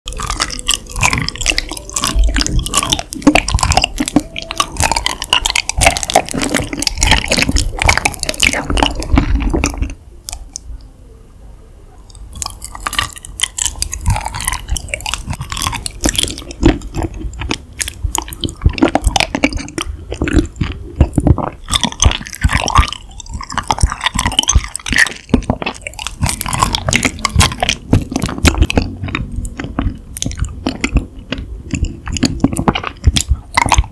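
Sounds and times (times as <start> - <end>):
chewing crunchy honeycomb: 0.1 - 10.7, 12.1 - 33.9.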